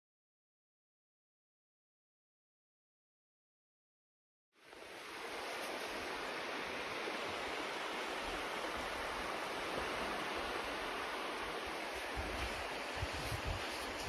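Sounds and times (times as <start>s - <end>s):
surf washing on a beach: 4.6s - 14.0s
wind rumble on microphone: 4.8s - 14.0s.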